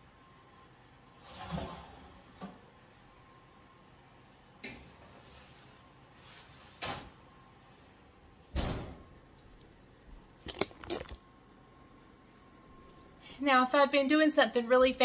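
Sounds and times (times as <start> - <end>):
kitchen doors shutting: 8.5 - 9.1.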